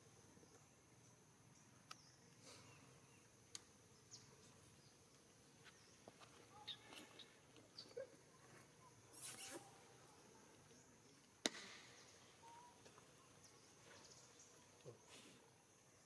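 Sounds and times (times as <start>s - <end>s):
faint clicks and chirps: 0.4s - 15.1s
high insect buzz: 9.0s - 10.2s.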